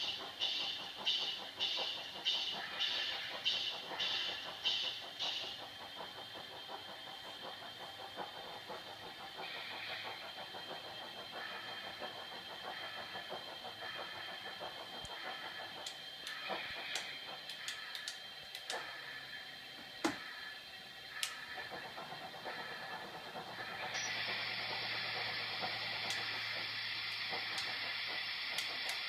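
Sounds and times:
model steam locomotive chuffing: 0:00.0 - 0:29.0
steady high whine: 0:00.0 - 0:29.0
sharp clicks: 0:13.9 - 0:19.0, 0:21.2 - 0:21.9, 0:23.6 - 0:29.0.

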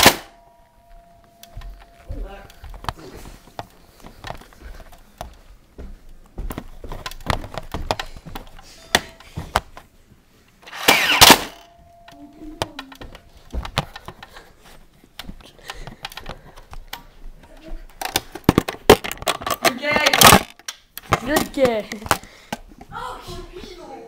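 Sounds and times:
footsteps: 0:00.4 - 0:10.8, 0:11.5 - 0:19.0, 0:21.1 - 0:24.0.

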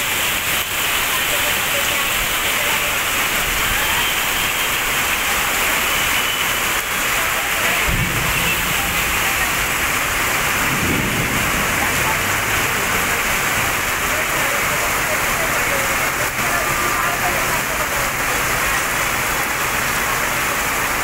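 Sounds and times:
heavy rain pouring on street: 0:00.0 - 0:21.0
low rumbles: 0:07.9 - 0:14.0.

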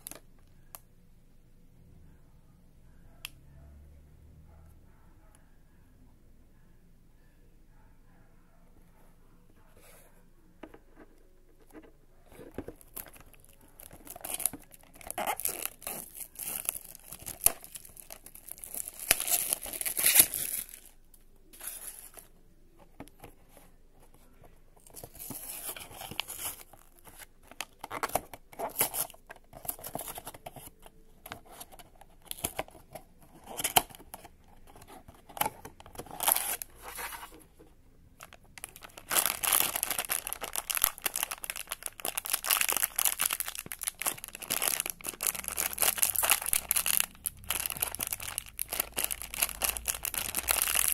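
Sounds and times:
cardboard and plastic tearing: 0:12.5 - 0:20.9, 0:33.4 - 0:37.3, 0:38.6 - 0:50.9.

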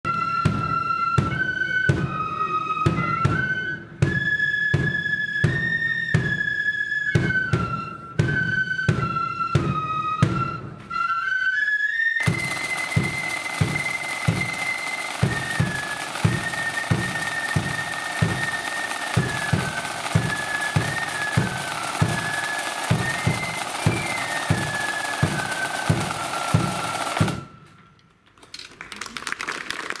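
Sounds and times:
flute melody: 0:00.0 - 0:28.0
side drums rattling: 0:12.2 - 0:27.5.

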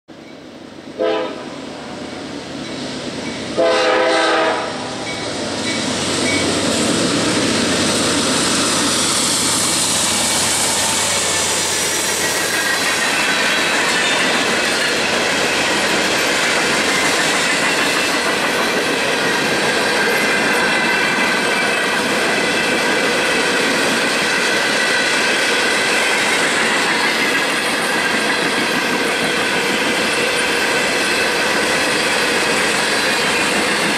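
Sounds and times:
locomotive horn blasts: 0:01.0 - 0:01.6, 0:03.6 - 0:05.0
high ringing from wheels: 0:02.0 - 0:03.6, 0:04.8 - 0:06.8
train wheel clatter: 0:05.0 - 0:33.9.

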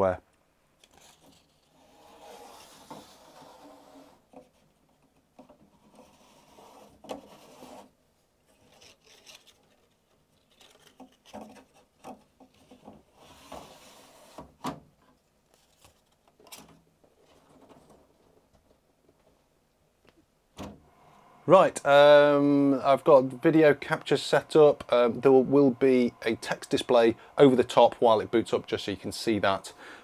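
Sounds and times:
circuit cards scraping in guides: 0:08.5 - 0:11.3.

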